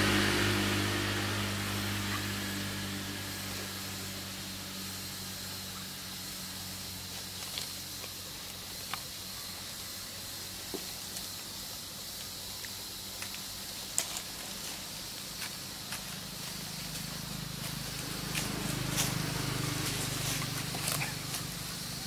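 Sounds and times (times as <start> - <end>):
forest background hiss: 0.0 - 22.0
dry leaves crackling: 5.4 - 22.0.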